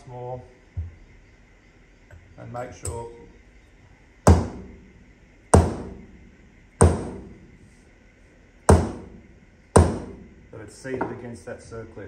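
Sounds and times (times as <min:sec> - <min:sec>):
mallet striking metal gear: 0:04.3 - 0:04.8, 0:05.6 - 0:06.1, 0:06.8 - 0:07.4, 0:08.7 - 0:09.2, 0:09.8 - 0:10.3.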